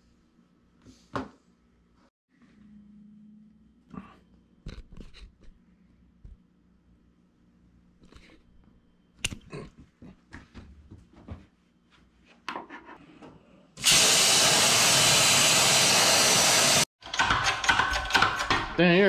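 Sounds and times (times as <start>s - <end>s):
plasma torch hissing: 13.8s - 16.9s.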